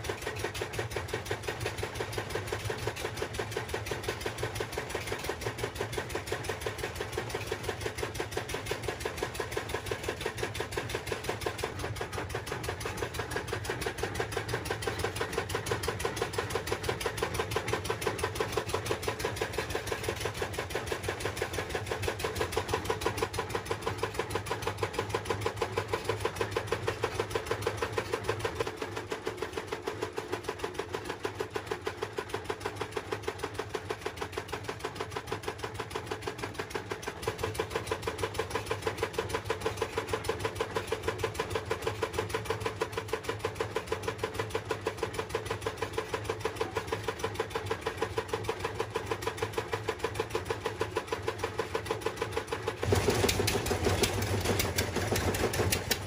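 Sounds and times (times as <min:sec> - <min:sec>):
small engine pulsing: 0:35.9 - 0:56.0.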